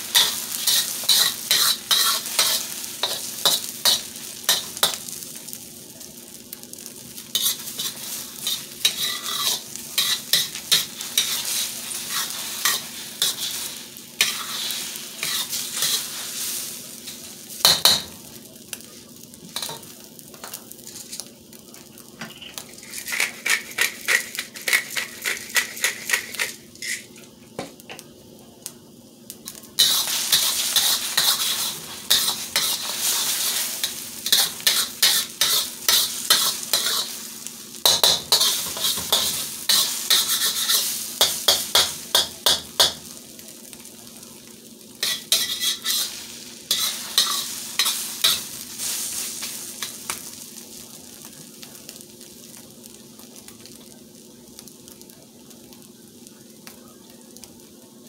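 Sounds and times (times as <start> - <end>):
egg sizzling in wok: 0.0 - 27.9, 28.6 - 57.8
metal spatula scraping pan: 0.2 - 4.0, 7.4 - 16.2, 29.8 - 37.1, 37.9 - 42.2, 45.0 - 49.2.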